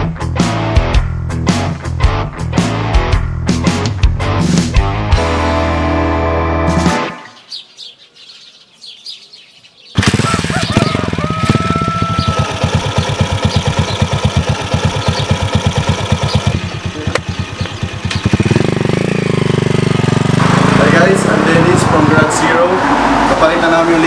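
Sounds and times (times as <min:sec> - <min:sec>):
small birds chirping: 0:07.2 - 0:21.6
motorcycle engine idling: 0:10.0 - 0:22.0.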